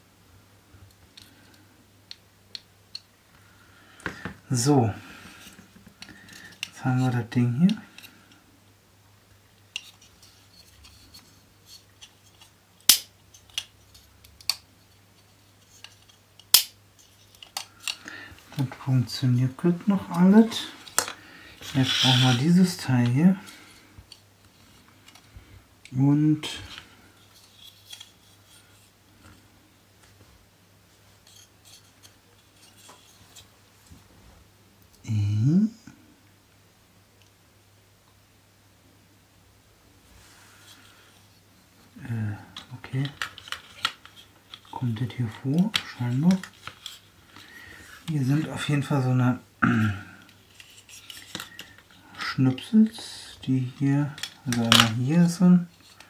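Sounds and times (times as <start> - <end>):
low steady hum: 0.0 - 56.0
plastic parts clicking and rubbing: 5.2 - 8.4, 9.7 - 29.4, 42.5 - 48.6, 50.2 - 56.0
plastic parts clicking: 15.6 - 18.7, 42.6 - 44.8, 50.2 - 52.0, 54.1 - 55.0
plastic parts snapping: 15.8 - 18.0.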